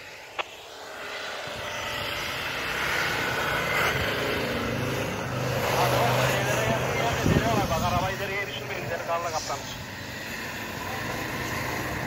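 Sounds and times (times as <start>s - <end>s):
tyres churning snow: 0.0s - 12.0s.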